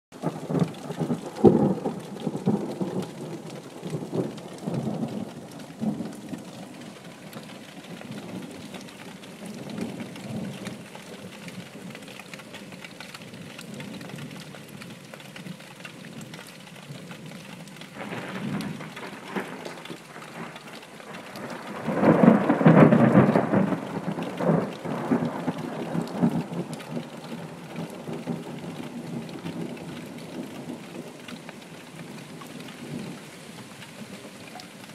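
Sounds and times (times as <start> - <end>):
heavy rain: 0.1 - 34.9
thunder rumbling: 0.2 - 10.8, 18.0 - 31.2.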